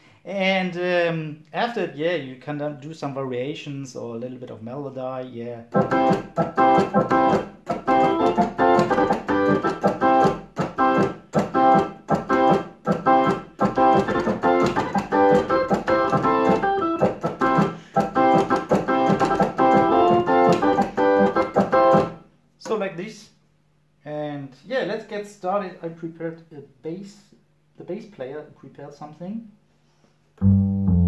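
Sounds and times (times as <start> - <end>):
electric organ ska chords: 5.7 - 22.2, 30.4 - 31.0.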